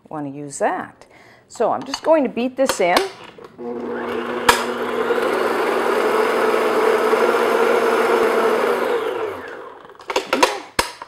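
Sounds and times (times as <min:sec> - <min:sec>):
electric stand mixer running: 0:03.5 - 0:10.0.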